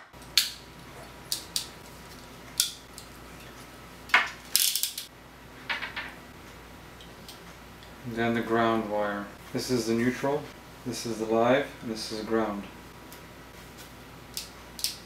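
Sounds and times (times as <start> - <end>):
crimping tool clicks and snaps: 14.3 - 15.0.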